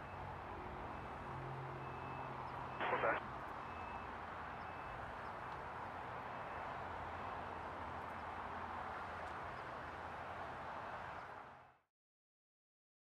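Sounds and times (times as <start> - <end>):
airport background hiss: 2.8 - 3.2.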